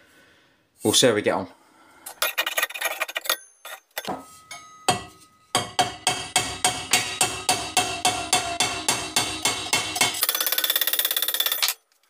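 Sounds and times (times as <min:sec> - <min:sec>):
hammer striking sheet metal: 0:04.1 - 0:10.4.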